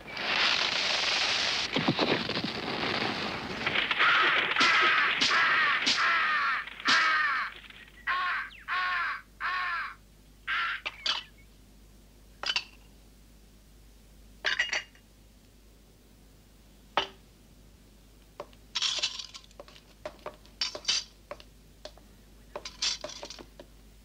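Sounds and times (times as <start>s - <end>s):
crow cawing: 3.9s - 11.0s.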